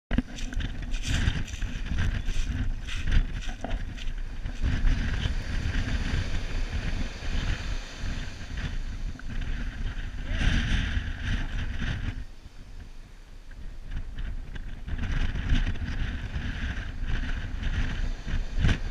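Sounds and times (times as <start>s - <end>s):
wind buffeting the microphone: 0.1s - 18.9s
surf breaking on beach: 0.2s - 12.8s, 13.8s - 18.9s.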